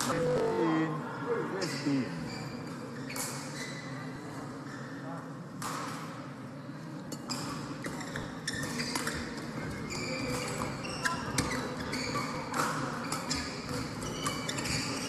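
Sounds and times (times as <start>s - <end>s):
echoing play from other courts: 0.0s - 15.0s
shoes squeaking on court floor: 2.3s - 4.1s, 7.2s - 15.0s.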